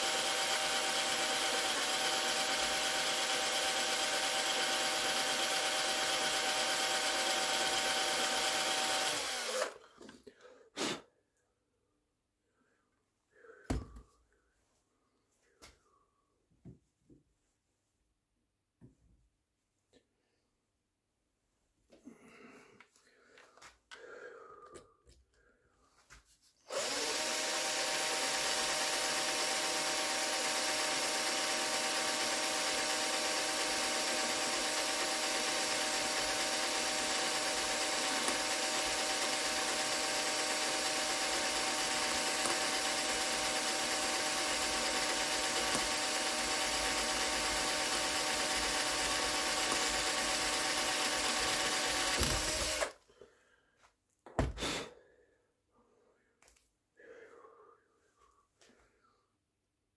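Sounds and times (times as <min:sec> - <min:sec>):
electric power tool running: 0:00.0 - 0:09.8, 0:26.7 - 0:53.0.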